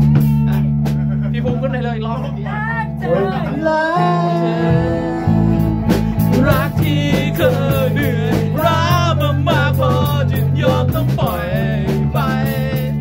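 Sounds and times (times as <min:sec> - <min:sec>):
drum kit: 0:00.0 - 0:02.1, 0:04.5 - 0:13.0
bass guitar: 0:00.0 - 0:13.0
electric guitar: 0:00.0 - 0:13.0
man singing: 0:03.0 - 0:13.0.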